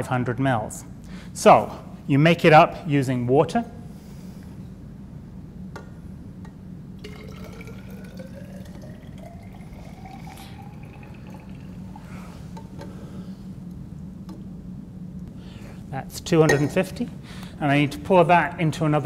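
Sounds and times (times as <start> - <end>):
water pouring into glass cylinder: 7.0 - 12.5.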